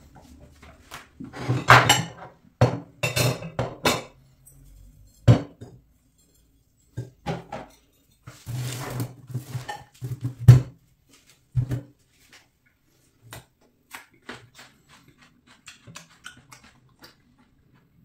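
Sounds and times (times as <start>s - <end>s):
person chewing: 13.4s - 18.0s.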